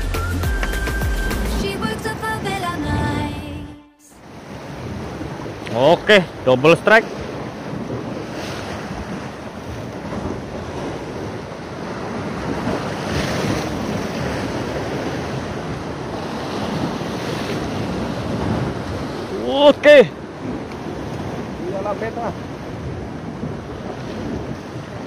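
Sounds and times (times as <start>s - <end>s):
surf washing against rocks: 4.2s - 25.0s
wind buffeting microphone: 4.2s - 25.0s.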